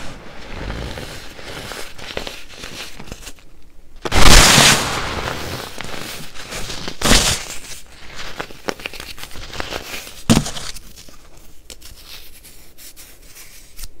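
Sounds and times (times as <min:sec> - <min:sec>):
hands crunching baking soda: 0:00.0 - 0:03.4, 0:04.0 - 0:13.8.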